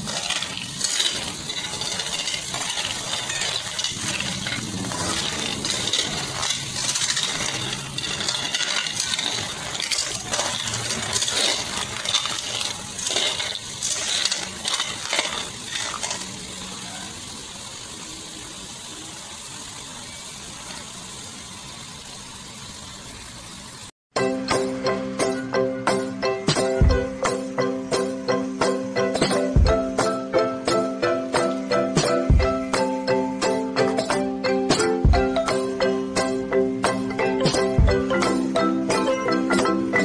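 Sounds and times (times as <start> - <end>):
mussel shells clattering in pan: 0.0 - 16.7
sizzling: 0.0 - 40.0.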